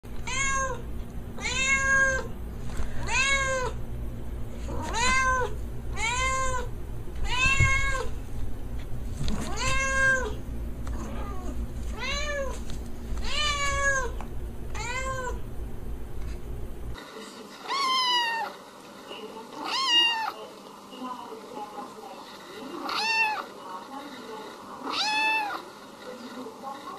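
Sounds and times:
cat meowing: 0.2s - 0.8s, 1.4s - 2.3s, 3.0s - 3.8s, 4.7s - 8.1s, 9.5s - 10.4s, 11.0s - 12.6s, 13.2s - 14.2s, 14.8s - 15.4s, 17.7s - 18.5s, 19.6s - 20.4s, 22.8s - 23.5s, 24.8s - 25.6s.

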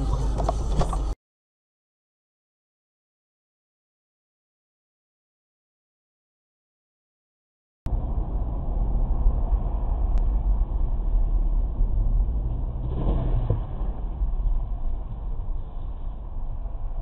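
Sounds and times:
car engine and road noise: 0.0s - 1.2s, 7.9s - 17.0s.

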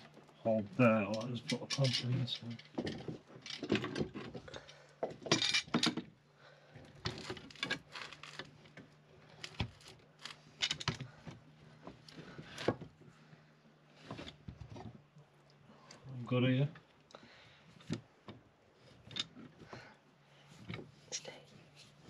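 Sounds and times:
metal clamp clinking and clanking: 1.1s - 4.3s.

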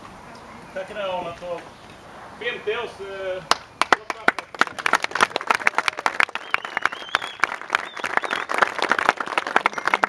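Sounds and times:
crowd applauding: 3.5s - 10.0s.

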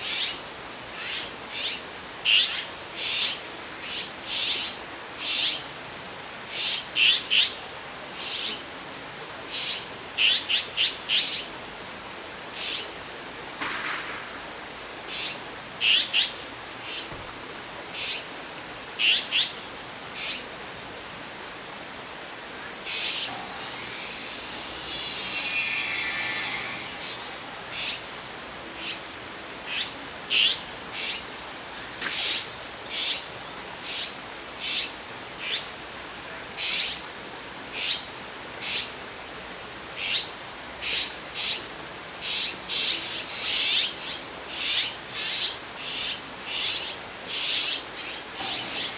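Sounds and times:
fledglings calling: 0.0s - 5.7s, 9.5s - 11.5s, 12.6s - 13.0s, 15.1s - 17.2s, 18.0s - 18.3s, 19.0s - 20.5s, 22.6s - 35.7s, 37.8s - 39.0s, 40.0s - 48.9s
harsh drawn-out bird rasp: 22.9s - 28.0s.

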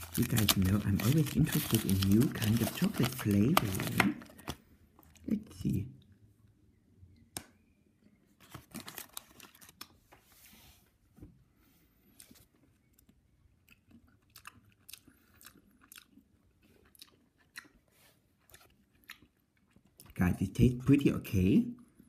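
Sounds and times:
chewing chocolate: 12.8s - 20.2s.

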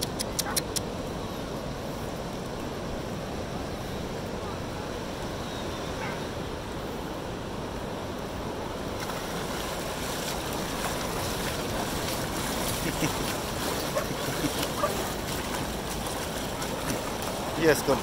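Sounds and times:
waves washing up a beach: 0.8s - 18.0s
dog splashing through water: 9.0s - 18.0s.

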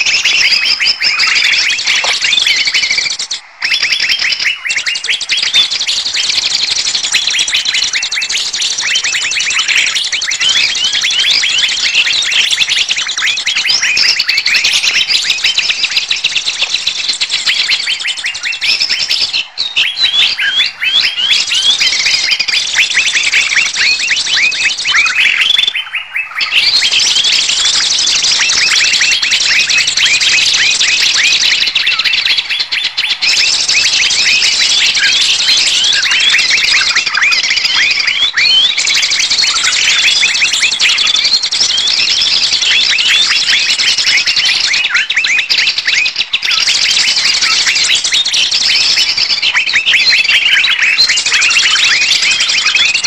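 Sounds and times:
chorus of small birds chirping: 0.0s - 53.0s.

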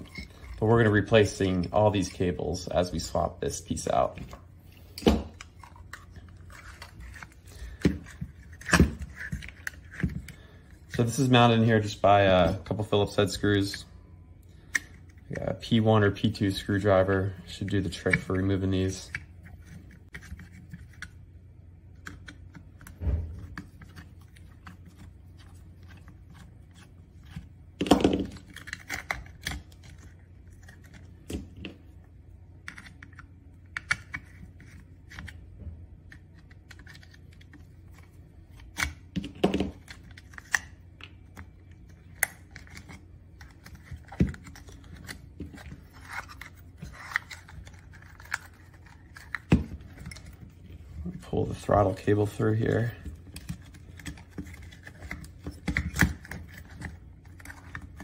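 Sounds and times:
hands handling plastic parts: 0.0s - 13.9s, 14.6s - 58.0s.

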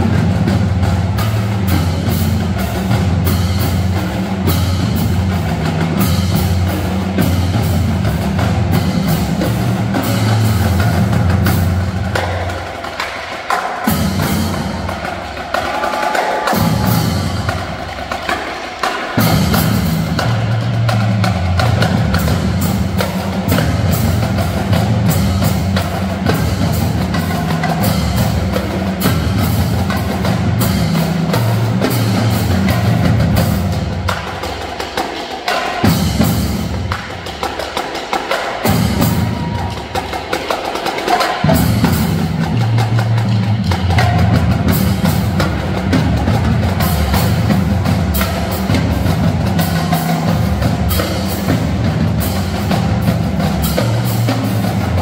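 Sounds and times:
snare drums: 0.0s - 55.0s
tenor drums: 0.0s - 55.0s
pitched bass drums: 41.4s - 55.0s.

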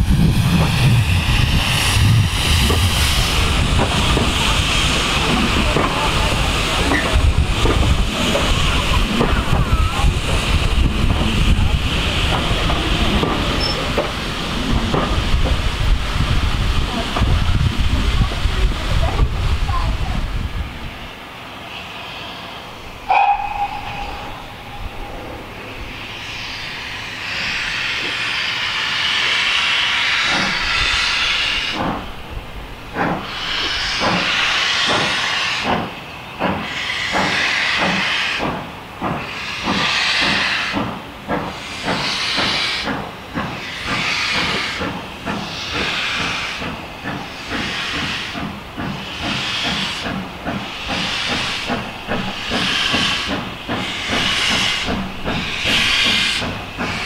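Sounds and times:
steam hissing: 0.0s - 57.0s
locomotive exhaust beats: 32.8s - 57.0s.

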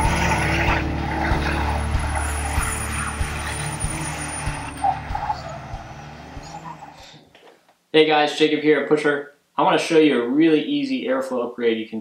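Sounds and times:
truck engine running hard: 0.0s - 7.0s.

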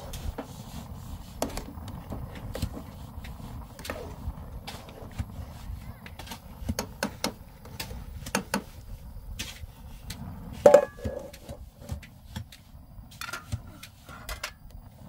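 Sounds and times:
metal clank ringing: 10.7s - 11.3s
tools knocking and clinking: 10.7s - 11.4s.

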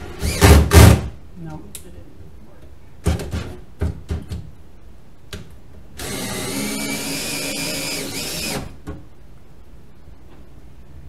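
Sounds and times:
cordless drill motor: 6.0s - 8.7s.

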